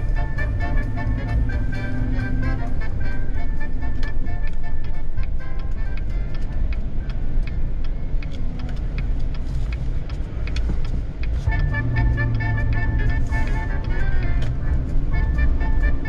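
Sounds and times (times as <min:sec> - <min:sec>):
music playing quietly: 0:00.0 - 0:16.0
truck engine and road rumble: 0:00.0 - 0:16.0.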